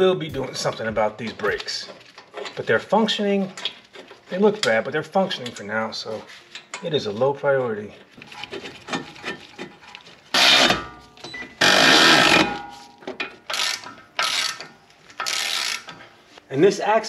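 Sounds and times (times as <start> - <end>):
electric ratchet running: 10.3 - 10.8, 11.6 - 12.5, 13.5 - 14.6, 15.2 - 15.9.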